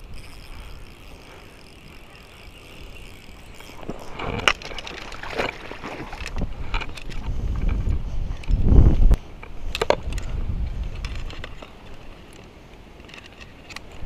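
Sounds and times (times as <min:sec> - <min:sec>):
fishing gear knocking and rustling: 0:00.0 - 0:08.6, 0:09.4 - 0:14.0
water splashing: 0:02.2 - 0:06.4.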